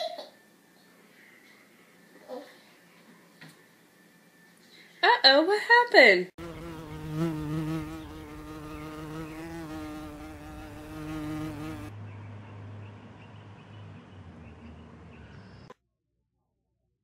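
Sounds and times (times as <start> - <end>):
insect buzzing: 6.4 - 11.9.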